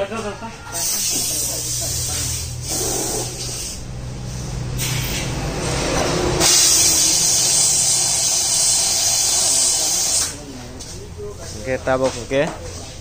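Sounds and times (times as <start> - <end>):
compressed air hissing from blow gun: 0.8 - 5.2, 6.4 - 10.4.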